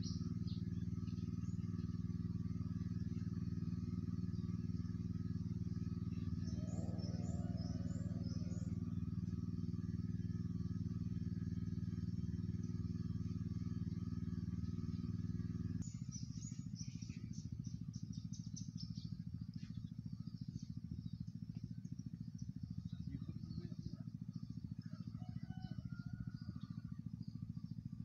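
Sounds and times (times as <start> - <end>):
low mechanical hum: 0.0 - 28.0.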